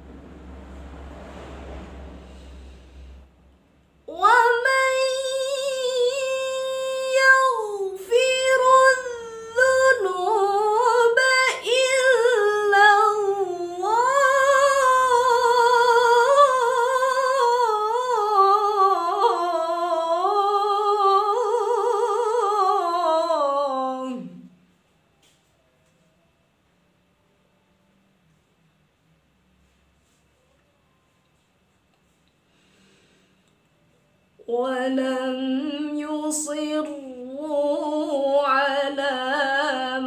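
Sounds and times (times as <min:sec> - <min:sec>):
woman reciting melodically: 0:04.0 - 0:24.5, 0:34.4 - 0:40.0.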